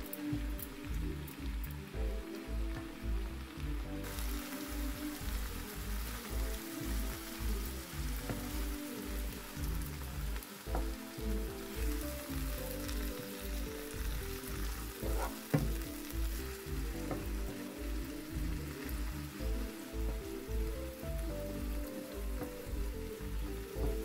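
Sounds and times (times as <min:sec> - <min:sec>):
background music with bass beat: 0:00.0 - 0:24.0
vegetables sizzling in frying pan: 0:00.0 - 0:24.0
wooden spoon stirring: 0:04.1 - 0:20.8.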